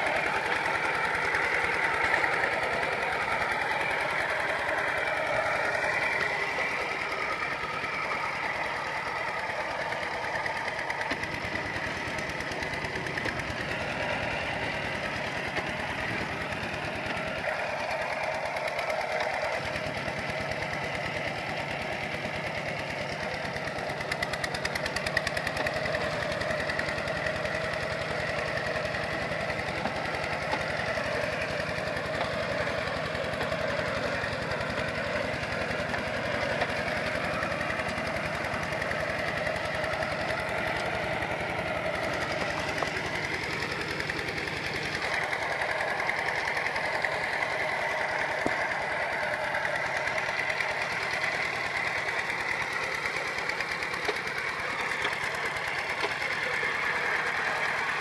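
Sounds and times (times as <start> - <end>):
diesel engine knocking: 0.0 - 58.0.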